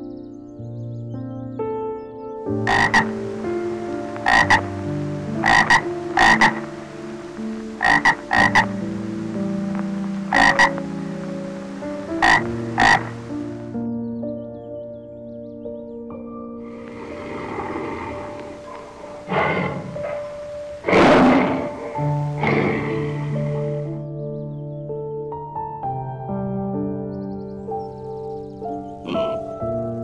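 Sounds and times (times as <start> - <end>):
soft background music: 0.0 - 30.0
frog croaking: 2.6 - 13.7, 16.7 - 23.9, 29.0 - 29.6.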